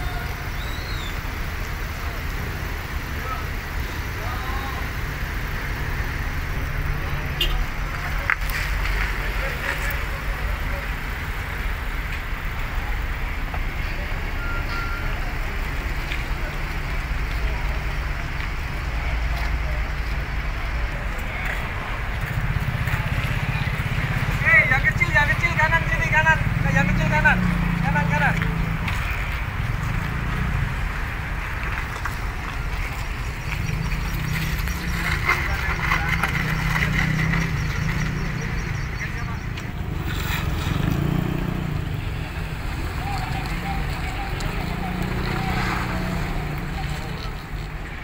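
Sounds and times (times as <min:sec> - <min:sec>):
harbour noise: 0:00.0 - 0:48.0
vehicle engines rumbling: 0:00.0 - 0:48.0
high electronic beep: 0:14.3 - 0:15.2.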